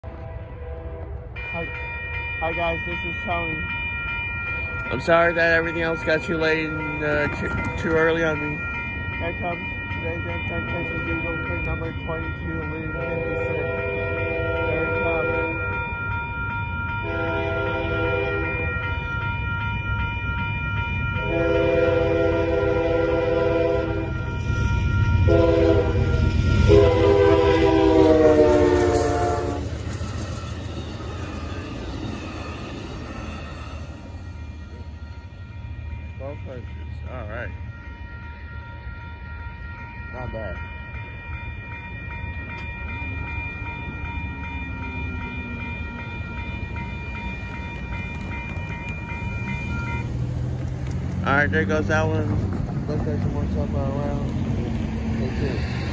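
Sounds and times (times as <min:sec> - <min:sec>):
train horn blasts: 0:00.0 - 0:01.8, 0:12.9 - 0:15.8, 0:17.0 - 0:18.8, 0:21.2 - 0:24.5, 0:25.1 - 0:29.8
crossing warning bell ringing: 0:00.0 - 0:55.9
train rumble: 0:00.0 - 0:55.9.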